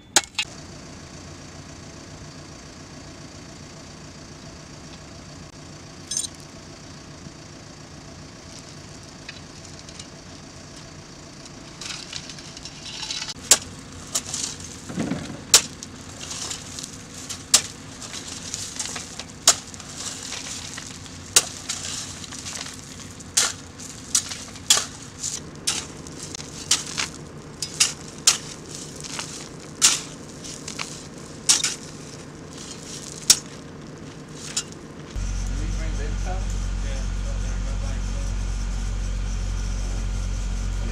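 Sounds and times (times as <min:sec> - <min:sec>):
loader engine idling: 0:00.0 - 0:40.9
shovels scraping gravel: 0:11.4 - 0:36.1.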